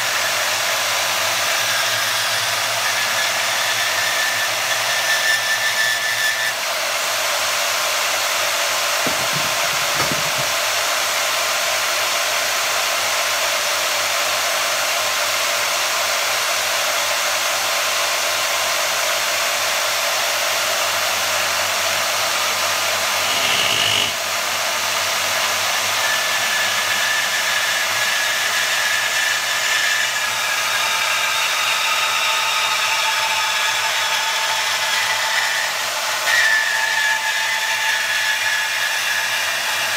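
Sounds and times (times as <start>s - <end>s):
bandsaw cutting metal: 0.0s - 13.8s, 16.5s - 39.9s
saw blade whine and squeals: 0.0s - 39.9s.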